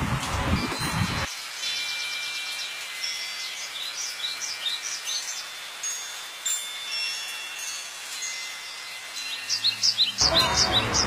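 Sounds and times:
outdoor hiss: 0.0 - 11.0
small birds chirping: 1.6 - 6.2, 8.6 - 11.0.

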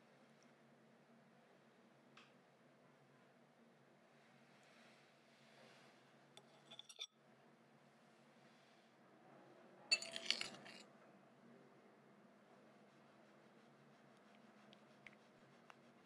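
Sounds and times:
metal spoon clinking on glass bowl: 6.6 - 7.1, 9.9 - 10.8.

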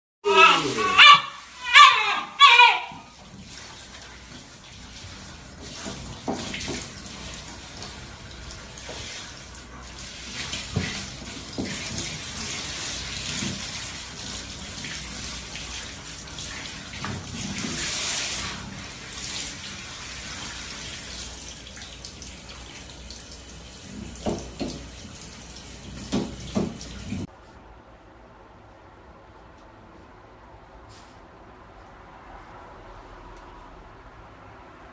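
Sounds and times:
water running: 0.2 - 27.3.

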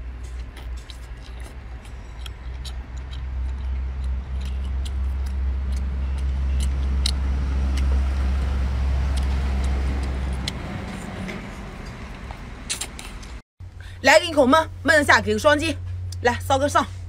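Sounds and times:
low engine rumble: 0.0 - 17.0
wet clicks of person eating: 0.3 - 8.0, 9.1 - 10.6.

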